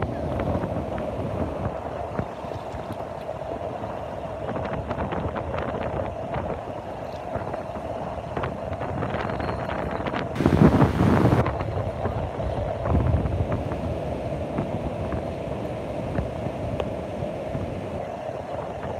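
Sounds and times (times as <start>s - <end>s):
wind buffeting microphone: 0.0s - 18.9s
sea surf breaking: 10.2s - 18.9s.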